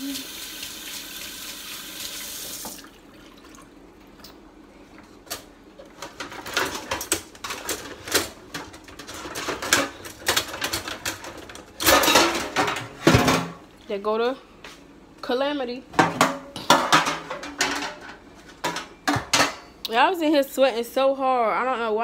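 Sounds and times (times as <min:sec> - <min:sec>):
kitchen tap running: 0:00.0 - 0:03.7
dishes and cutlery clattering: 0:06.0 - 0:13.6, 0:16.0 - 0:19.7.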